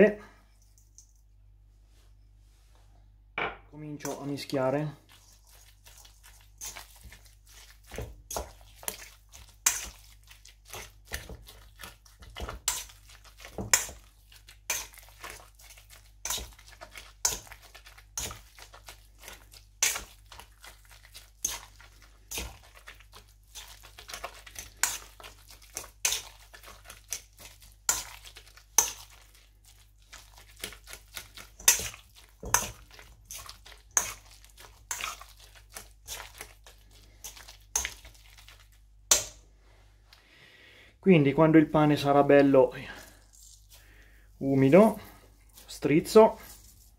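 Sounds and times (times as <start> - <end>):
fork scraping metal bowl: 5.1 - 18.7, 23.6 - 29.3, 30.1 - 36.5.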